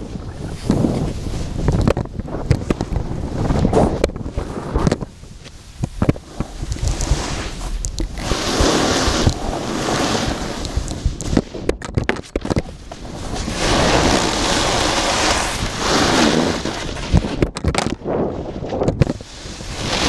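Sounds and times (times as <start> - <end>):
snowboard carving on snow: 0.0 - 11.7, 12.7 - 17.4, 18.0 - 20.0
wind buffeting microphone: 0.0 - 20.0.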